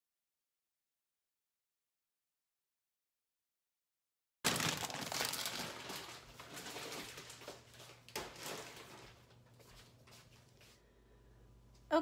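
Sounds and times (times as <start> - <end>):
plastic bag crinkling: 4.5 - 9.5.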